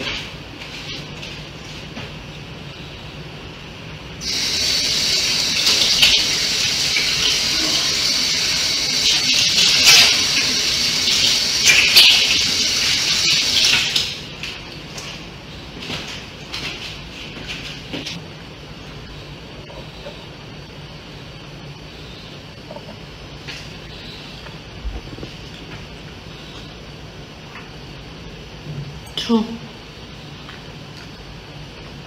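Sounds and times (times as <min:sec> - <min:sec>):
tap water running: 0:04.2 - 0:14.7.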